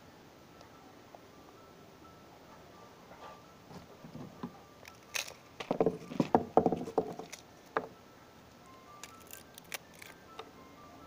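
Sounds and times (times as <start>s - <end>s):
knocks and clatters of objects: 5.1s - 7.9s.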